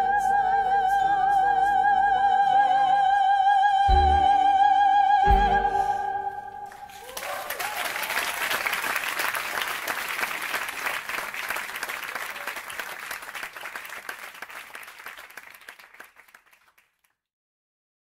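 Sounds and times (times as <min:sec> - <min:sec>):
audience applauding: 0:06.7 - 0:17.1.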